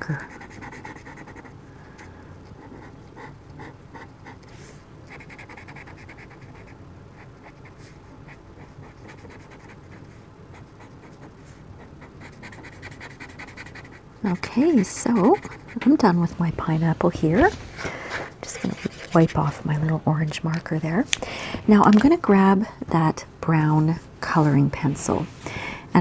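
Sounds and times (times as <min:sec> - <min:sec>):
marker scratching on paper: 0:00.2 - 0:01.5, 0:02.5 - 0:16.0, 0:18.5 - 0:19.3.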